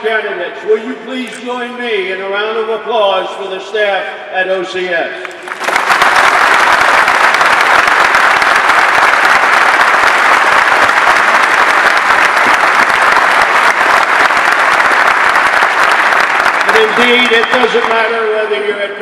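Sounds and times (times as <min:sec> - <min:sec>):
crowd applauding: 0:05.2 - 0:18.6.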